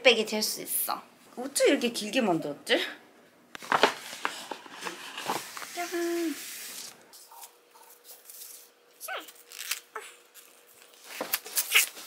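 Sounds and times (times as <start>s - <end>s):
paper bag and box rustling: 3.6s - 8.7s.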